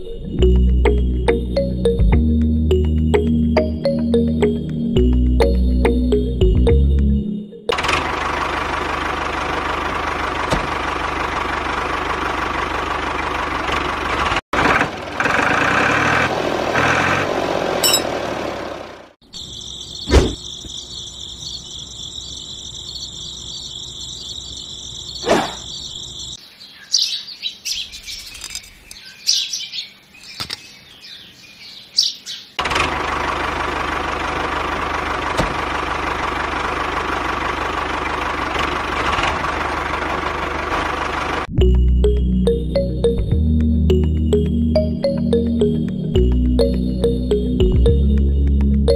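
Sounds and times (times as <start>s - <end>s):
background music: 0.0s - 7.7s, 41.5s - 48.9s
birds chirping: 19.2s - 32.6s.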